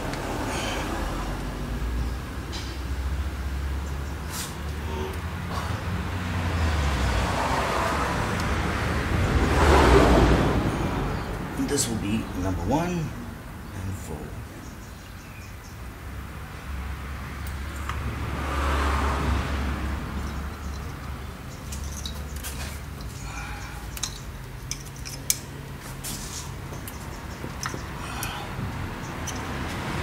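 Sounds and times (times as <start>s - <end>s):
hands fitting spark plug leads: 23.8s - 25.5s.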